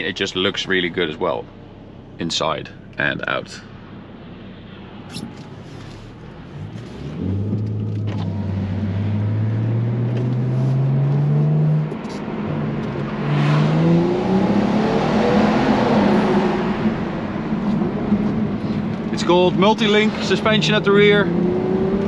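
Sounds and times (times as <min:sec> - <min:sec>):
road and wind noise: 0:00.0 - 0:22.0
car engine accelerating hard: 0:06.2 - 0:22.0.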